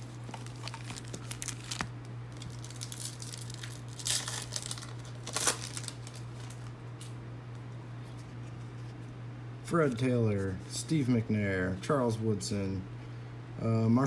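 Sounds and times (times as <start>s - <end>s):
wrapper crinkling as torn open: 0.1s - 7.1s.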